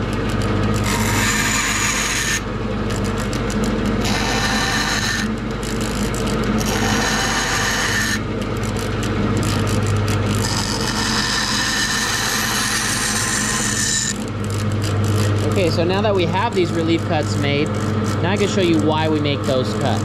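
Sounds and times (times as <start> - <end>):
saw blade cutting wood: 0.0 - 8.8, 9.4 - 14.3, 15.1 - 20.0
bandsaw motor hum: 0.0 - 20.0.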